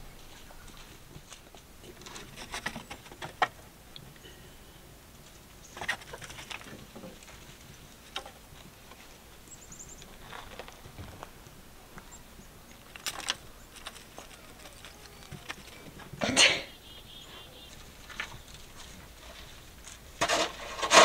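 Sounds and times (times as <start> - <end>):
rake scraping gravel: 0.0 - 3.4, 5.3 - 11.5, 12.8 - 21.0
scratches on gravel: 10.0 - 11.4, 12.9 - 15.9, 17.0 - 21.0
faint bird chirps: 16.6 - 18.7.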